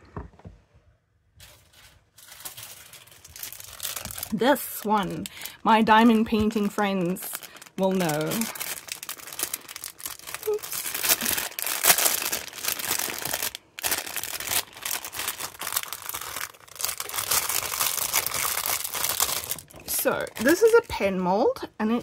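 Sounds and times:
plastic bag crinkling: 0:01.4 - 0:21.2.

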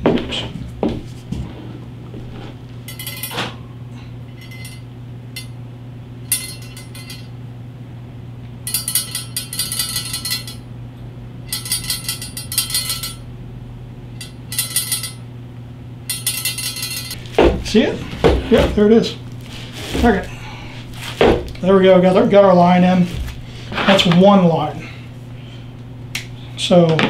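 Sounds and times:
metal nuts rattling in tube: 0:06.3 - 0:07.3, 0:08.7 - 0:10.6, 0:11.5 - 0:13.2, 0:14.2 - 0:15.2, 0:16.1 - 0:17.2.

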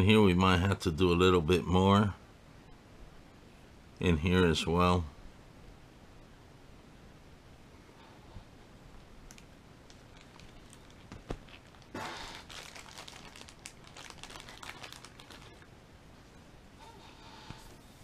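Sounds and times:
crinkling and rustling of handling: 0:08.9 - 0:18.0.

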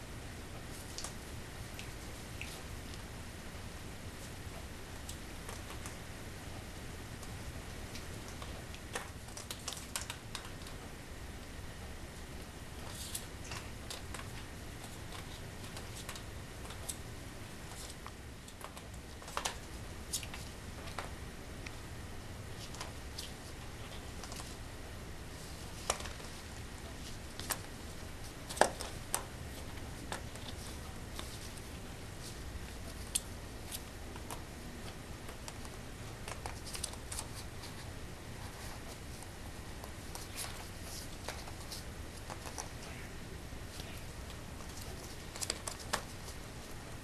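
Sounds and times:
low steady hum: 0:00.0 - 0:47.0
puppy claws clicking on tile: 0:07.9 - 0:10.8, 0:12.8 - 0:17.0, 0:17.6 - 0:21.8, 0:25.7 - 0:37.8, 0:39.8 - 0:42.9, 0:43.8 - 0:46.5.

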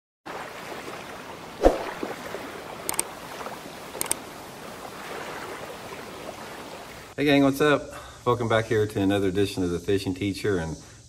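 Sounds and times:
sharp clicks: 0:02.9 - 0:03.1, 0:04.0 - 0:04.2.

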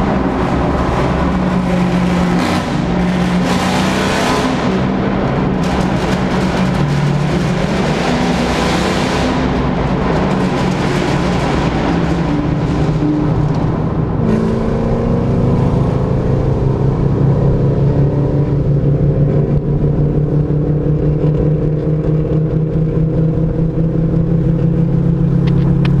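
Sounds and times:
car exhaust droning: 0:09.2 - 0:26.0.

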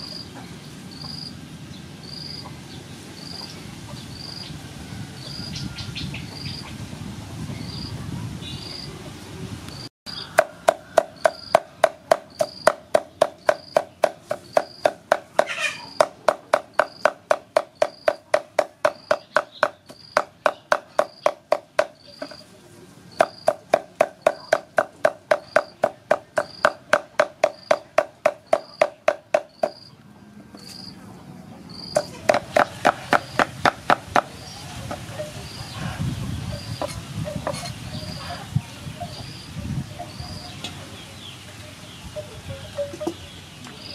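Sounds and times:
cleaver chopping meat on wood: 0:10.3 - 0:22.4, 0:23.2 - 0:29.8, 0:32.0 - 0:34.3.

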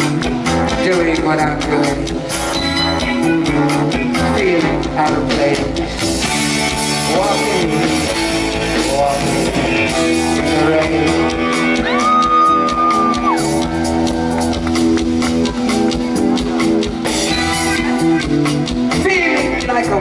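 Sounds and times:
person singing: 0:00.0 - 0:06.0, 0:07.0 - 0:13.6
live band music: 0:00.0 - 0:20.0.

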